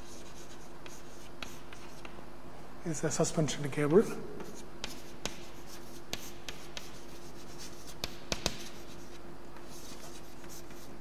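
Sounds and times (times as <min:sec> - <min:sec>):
chalk scratching on blackboard: 0:00.0 - 0:02.2, 0:04.4 - 0:11.0
chalk tapping on board: 0:00.0 - 0:02.2, 0:04.4 - 0:11.0.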